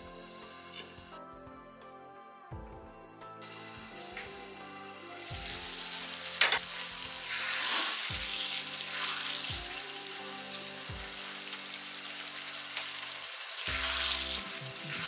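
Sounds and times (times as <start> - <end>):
faint background music: 0.0 - 15.0
gravy sizzling in a pan: 3.4 - 15.0.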